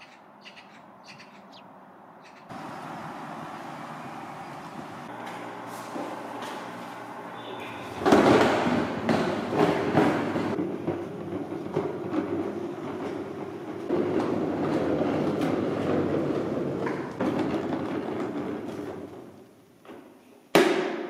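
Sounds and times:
plastic wheels rolling on concrete: 0:02.5 - 0:20.1.

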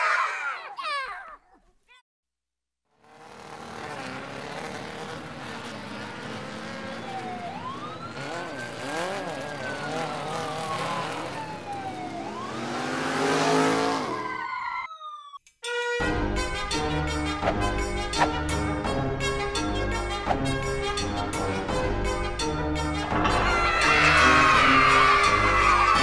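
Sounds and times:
motorcycle engine revving: 0:02.9 - 0:14.4
siren-like wail: 0:06.8 - 0:15.4, 0:23.2 - 0:26.0.

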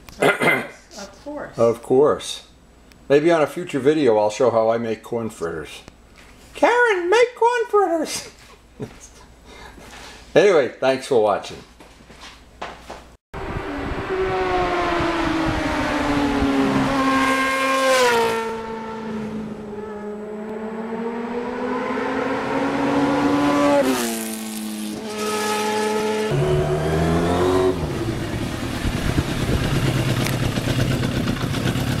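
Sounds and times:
motorcycle engine passing at high revs: 0:13.4 - 0:32.0
rough low engine hum: 0:26.2 - 0:32.0.

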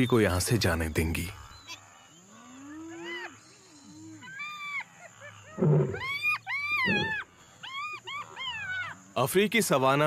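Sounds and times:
animal whining calls: 0:01.6 - 0:09.0.

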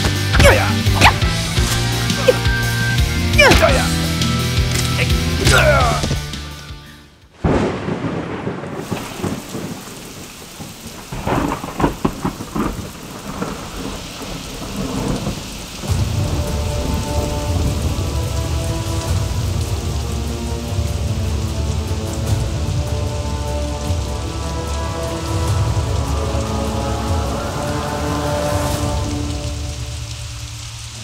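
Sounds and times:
heavy rain: 0:00.0 - 0:31.0
thunderclap: 0:07.3 - 0:27.6
sharp cracks of thunder: 0:07.4 - 0:19.8
deep thunder rumble: 0:07.4 - 0:31.0.

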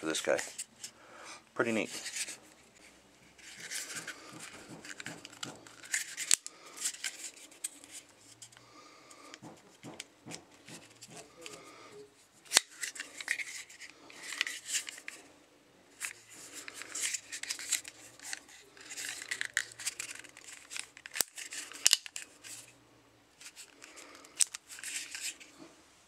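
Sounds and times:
revolver handling clicks and rubbing: 0:01.7 - 0:08.6, 0:16.0 - 0:22.7, 0:23.4 - 0:25.5.

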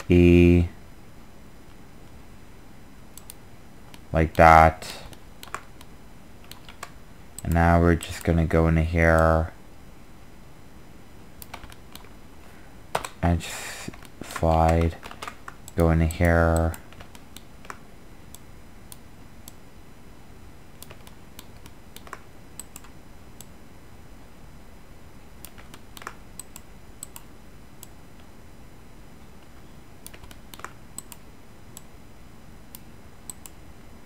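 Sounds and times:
steady low hiss: 0:00.0 - 0:34.0
keyboard and mouse clicks: 0:05.0 - 0:08.4, 0:11.4 - 0:12.1, 0:13.9 - 0:19.6, 0:20.8 - 0:23.5, 0:25.4 - 0:28.0, 0:30.0 - 0:31.2, 0:32.7 - 0:33.6.

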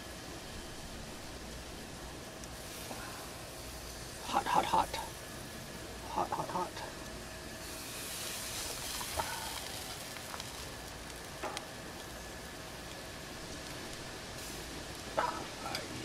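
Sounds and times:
food sizzling on a grill: 0:00.0 - 0:16.0.

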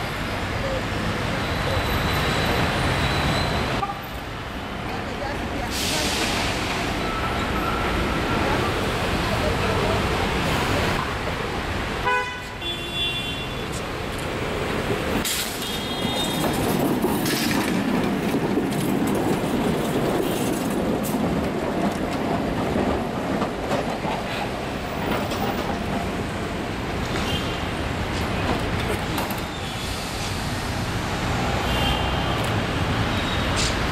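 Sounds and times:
tram rumbling past: 0:00.0 - 0:12.6, 0:13.6 - 0:33.9
high squeals of tram wheels: 0:00.8 - 0:04.0, 0:05.8 - 0:09.0, 0:15.2 - 0:17.9, 0:27.0 - 0:27.7, 0:28.4 - 0:30.7, 0:31.4 - 0:33.9
tram horn toot: 0:12.0 - 0:13.8.

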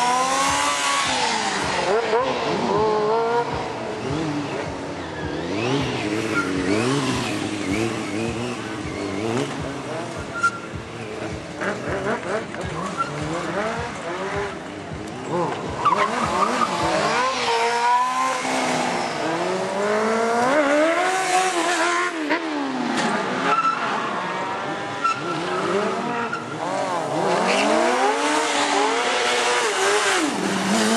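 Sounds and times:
motorcycle engine revving: 0:00.0 - 0:30.9
tyre squealing on asphalt: 0:00.0 - 0:30.9.

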